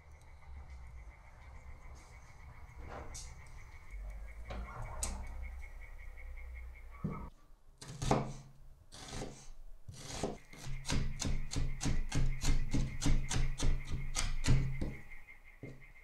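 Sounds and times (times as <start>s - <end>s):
knife chopping on wooden board: 7.8s - 15.0s.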